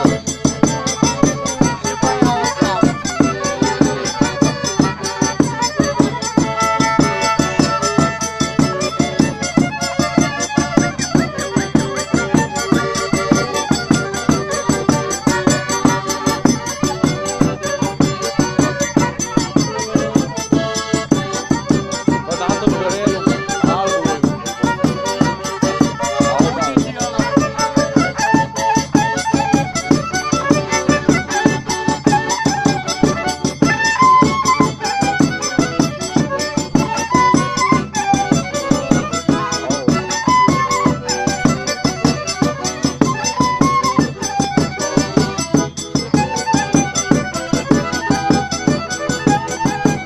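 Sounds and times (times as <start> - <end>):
horn violin folk tune: 0.0 - 50.0
piano accordion: 0.0 - 50.0.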